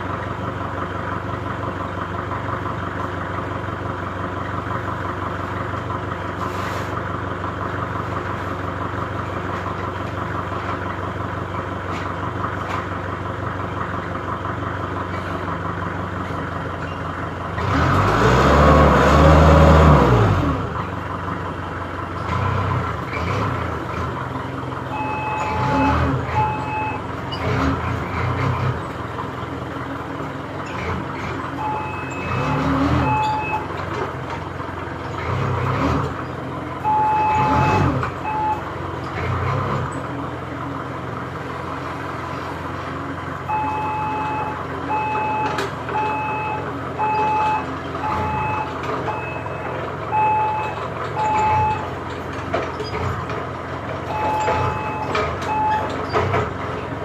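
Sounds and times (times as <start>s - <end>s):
forklift engine rumble: 0.0s - 57.0s
forklift reversing alarm beeps: 24.8s - 27.6s, 31.5s - 33.8s, 36.8s - 38.7s, 43.4s - 52.1s, 54.0s - 56.2s.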